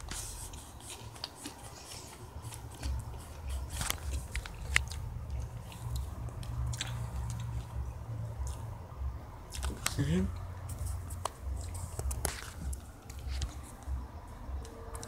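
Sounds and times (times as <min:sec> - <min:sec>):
low steady hum: 0:00.0 - 0:15.0
crunching bites: 0:09.5 - 0:10.0.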